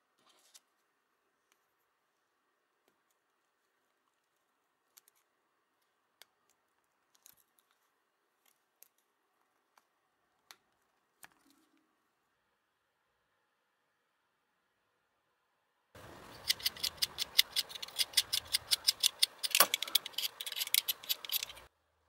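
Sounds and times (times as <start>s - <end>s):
faint sharp clicks and scrapes: 2.8s - 12.0s, 16.0s - 21.7s.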